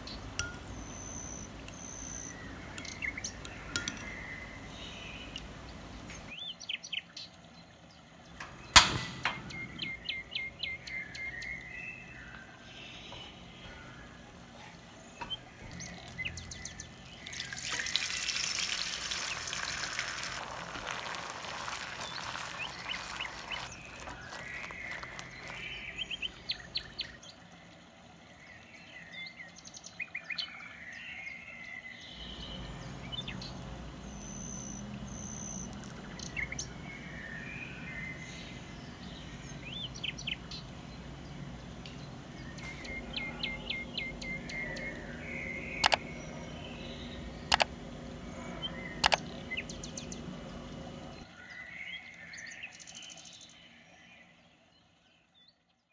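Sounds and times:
birds chirping: 0:00.0 - 0:55.6
butter sizzling in a pan: 0:16.9 - 0:25.8.

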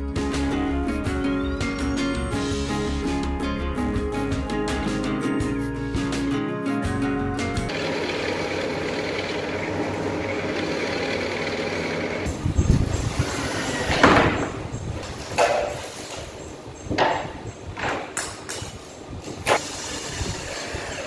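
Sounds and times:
drill press boring wood: 0:07.7 - 0:12.3, 0:19.6 - 0:21.0.

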